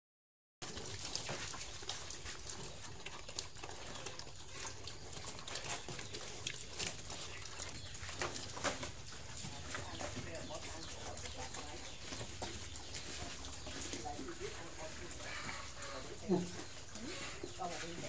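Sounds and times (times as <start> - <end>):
pigs smacking and chewing: 0.6 - 18.0.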